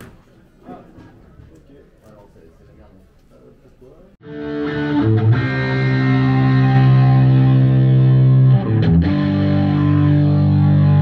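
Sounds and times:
distorted electric guitar chords: 4.2s - 11.0s.

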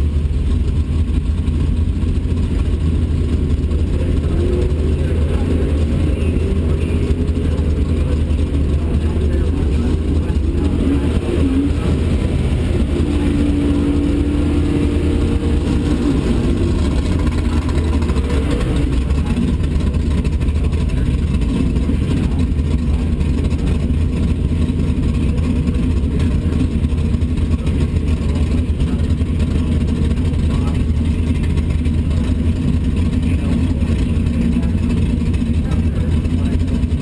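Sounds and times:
car engines idling: 0.0s - 37.0s.

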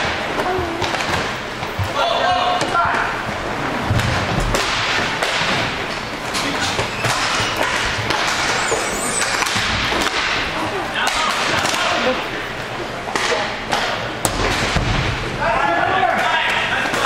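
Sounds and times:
noisy rink background: 0.0s - 17.0s
hockey sticks and puck clacking: 3.9s - 12.3s, 13.0s - 15.1s, 15.9s - 17.0s.

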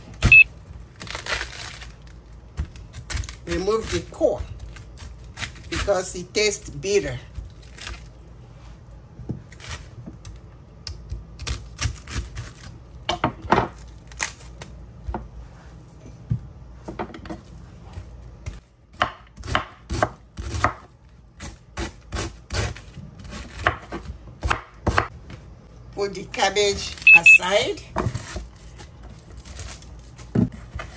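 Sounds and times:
knife slicing cabbage on wooden board: 17.9s - 25.1s, 28.0s - 30.9s.

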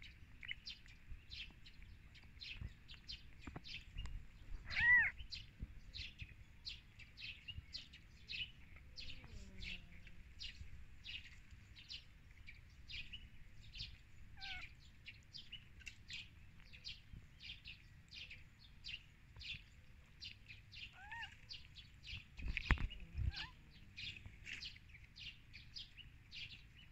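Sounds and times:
small birds chirping: 0.0s - 26.9s
kitten mewing: 4.6s - 5.1s, 14.4s - 14.7s.

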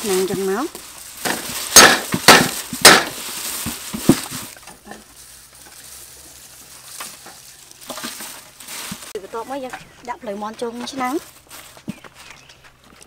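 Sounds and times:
stalks and leaves rustling crackling: 0.0s - 13.0s.

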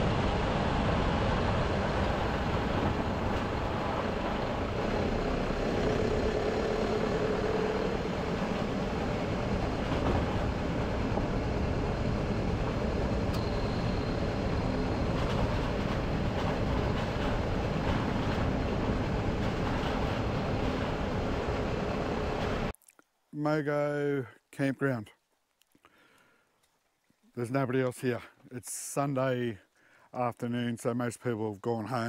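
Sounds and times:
vehicle driving on gravel road: 0.0s - 22.7s.

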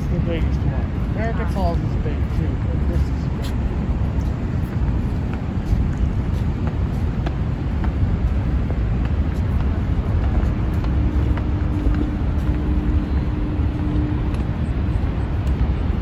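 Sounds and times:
waterfall roaring: 0.0s - 16.0s
faint steady tone: 10.4s - 16.0s.

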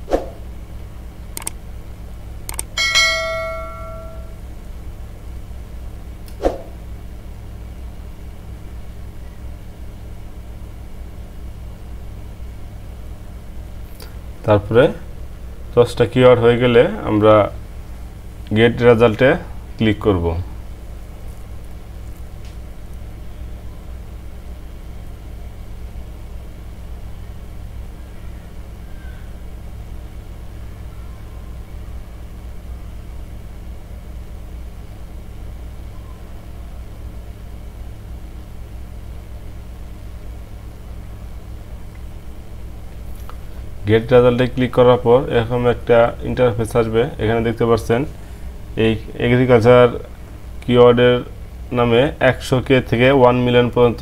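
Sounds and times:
low hum: 0.0s - 19.8s
steady low hum: 0.0s - 54.0s.

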